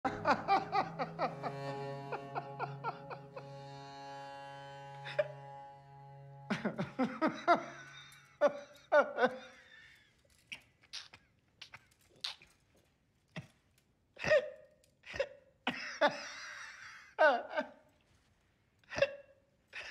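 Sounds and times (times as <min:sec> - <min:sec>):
man stifling laughter: 0:00.0 - 0:03.5, 0:06.5 - 0:09.6.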